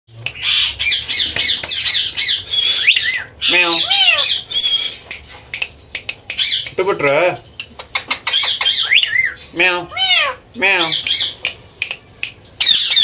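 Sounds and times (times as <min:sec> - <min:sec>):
parrot squawking: 0:00.4 - 0:05.0, 0:07.9 - 0:11.4, 0:12.6 - 0:13.0
parrot voice-like call: 0:02.8 - 0:04.4, 0:08.8 - 0:10.4.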